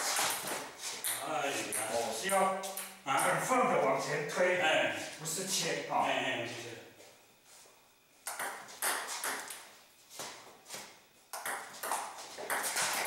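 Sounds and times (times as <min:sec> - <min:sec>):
ping-pong ball hitting paddles: 0:08.3 - 0:09.6, 0:11.3 - 0:13.0.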